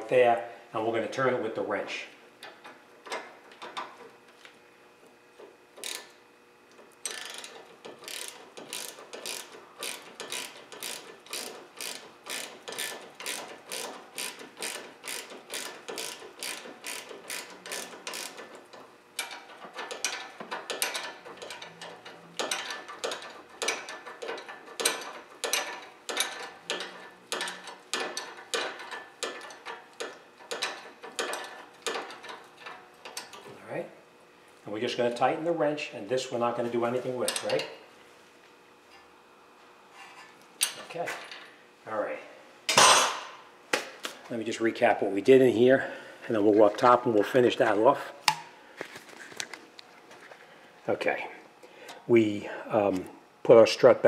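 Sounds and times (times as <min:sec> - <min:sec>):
ratcheting wrench clicking: 0:05.8 - 0:33.4.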